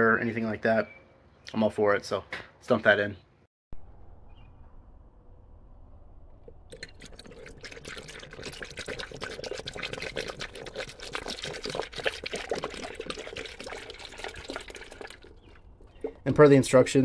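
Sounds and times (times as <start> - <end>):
liquid pouring into water: 6.5 - 16.2.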